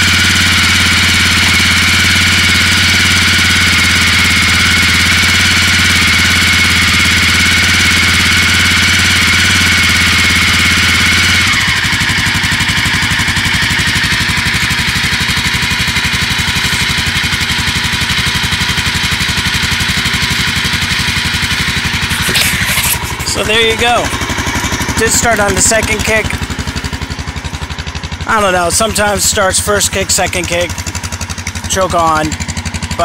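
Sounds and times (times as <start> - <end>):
motorcycle engine idling: 0.0 - 33.0.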